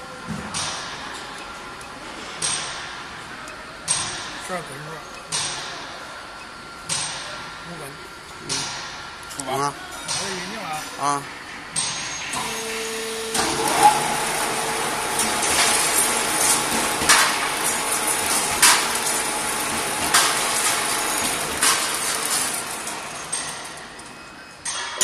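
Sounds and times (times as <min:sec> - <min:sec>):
motor hum: 0:12.3 - 0:23.8
wire machine whirring: 0:12.3 - 0:24.1.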